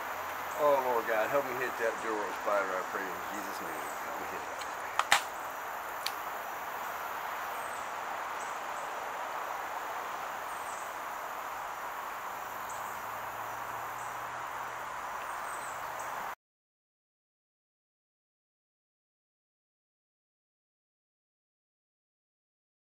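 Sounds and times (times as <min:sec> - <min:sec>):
insect chorus: 0:00.0 - 0:16.4.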